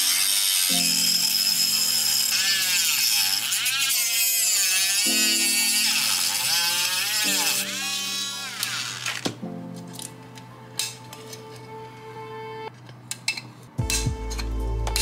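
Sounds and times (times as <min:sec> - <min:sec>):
rotary tool grinding plastic: 0:00.0 - 0:09.4.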